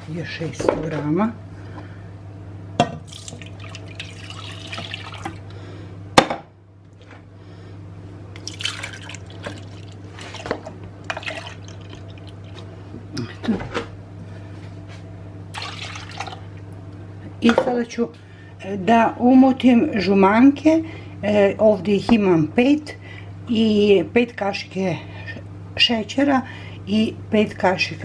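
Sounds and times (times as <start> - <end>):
steady low hum: 0.0 - 28.0
milk pouring into plastic jug: 3.1 - 5.4, 8.4 - 12.7, 15.5 - 16.4.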